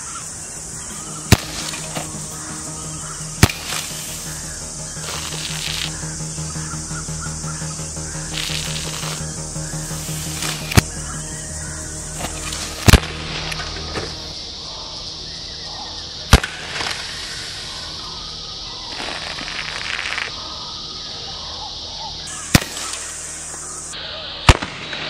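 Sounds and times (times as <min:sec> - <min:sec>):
steady high hiss: 0:00.0 - 0:24.4
pellet pistol shots: 0:01.3 - 0:02.0, 0:22.5 - 0:23.0.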